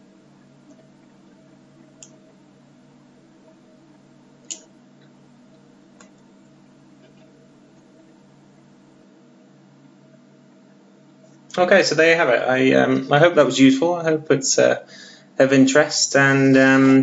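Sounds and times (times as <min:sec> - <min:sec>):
faint low hum: 0:00.0 - 0:17.0
computer mouse clicking: 0:02.0 - 0:02.2, 0:04.4 - 0:05.1.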